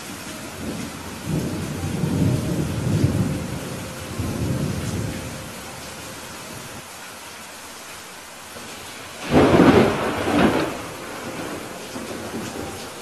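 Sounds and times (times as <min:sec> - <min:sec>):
steady rain hiss: 0:00.0 - 0:13.0
rolling thunder: 0:00.6 - 0:05.5, 0:09.2 - 0:13.0.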